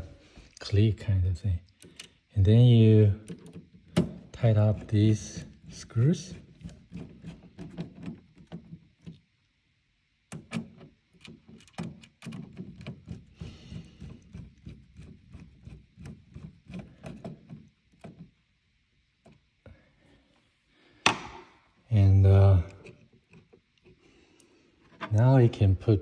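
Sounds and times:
screwdriver clicking and scraping: 3.2s - 9.2s, 10.3s - 18.3s.

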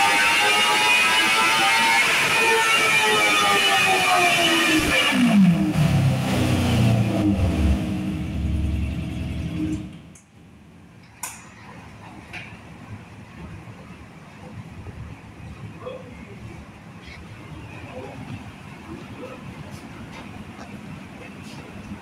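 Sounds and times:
race car engine revving down: 0.0s - 10.1s.

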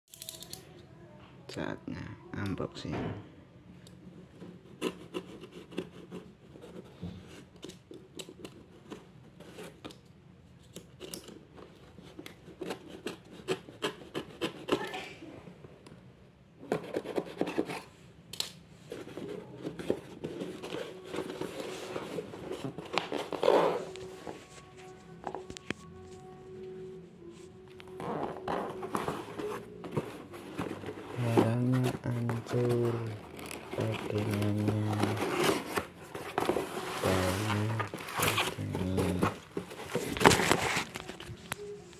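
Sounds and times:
cardboard flaps rustling: 28.5s - 41.4s.

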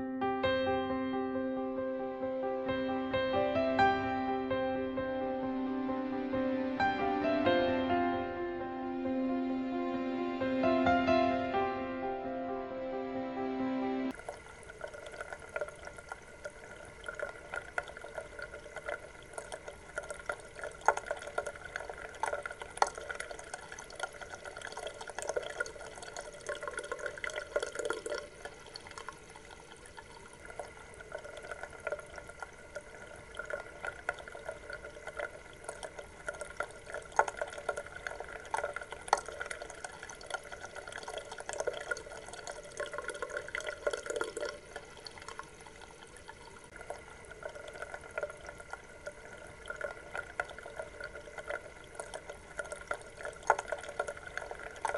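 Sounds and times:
water drips and splashes: 14.1s - 54.9s
water trickling: 14.1s - 54.9s.

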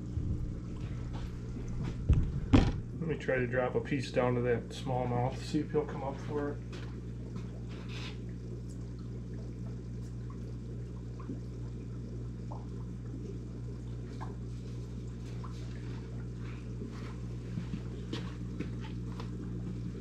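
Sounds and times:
low equipment hum: 0.0s - 20.0s
water trickling: 6.4s - 18.2s
small water drips: 6.4s - 19.8s.

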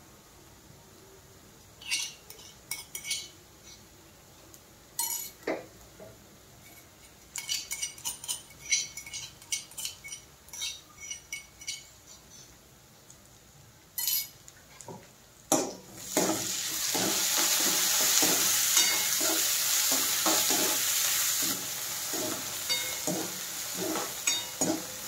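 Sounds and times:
steel spoon clinking on container: 7.4s - 11.9s, 14.0s - 14.3s, 18.8s - 19.3s, 22.7s - 23.2s, 23.8s - 24.9s.

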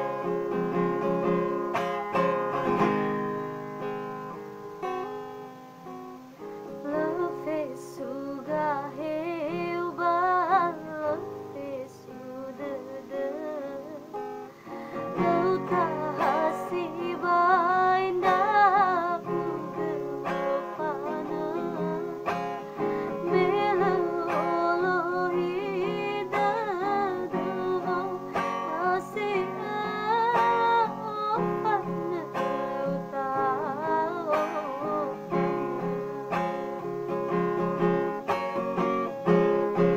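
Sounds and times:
guitar-led instrumental backing: 0.0s - 39.9s
woman singing with vibrato: 6.6s - 36.5s.

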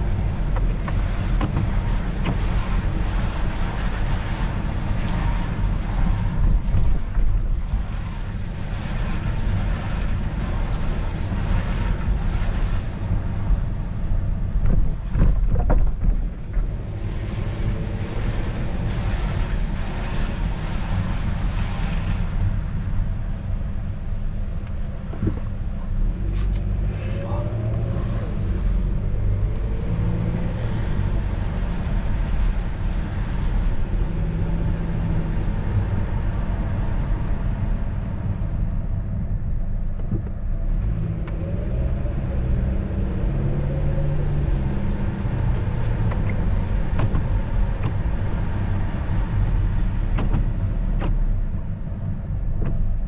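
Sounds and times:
car engine and road rumble: 0.0s - 53.0s.

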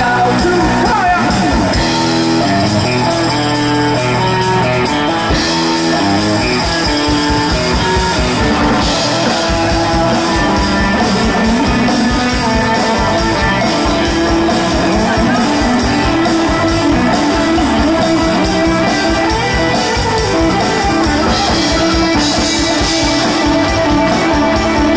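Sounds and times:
rock music with guitar: 0.0s - 24.9s.

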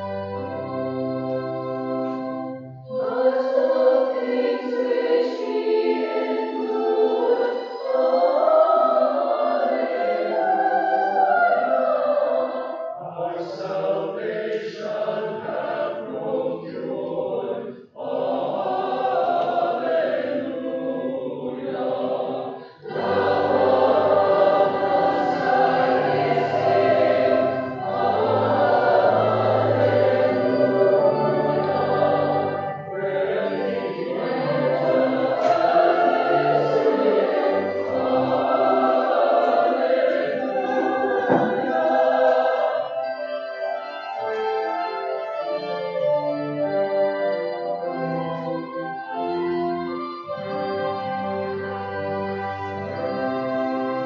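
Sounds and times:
choir singing: 0.0s - 54.0s
church organ chord: 0.0s - 54.0s
singers breathing: 22.5s - 22.9s.

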